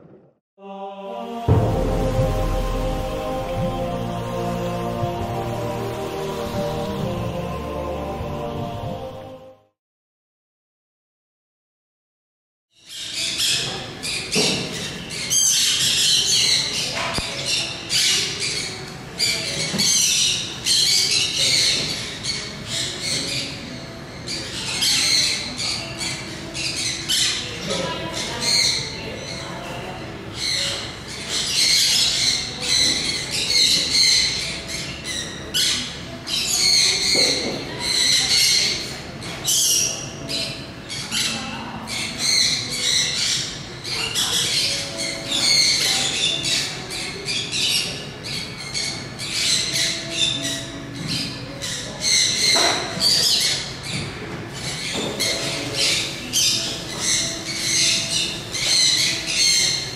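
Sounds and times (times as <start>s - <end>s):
birds squawking and chirping: 12.8s - 59.9s
faint murmur of voices: 13.0s - 59.9s.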